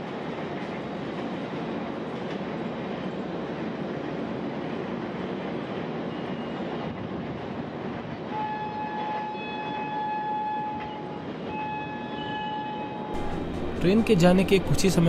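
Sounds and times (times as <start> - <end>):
train rumbling on tracks: 0.0 - 15.0
train horn blasts: 8.3 - 13.8.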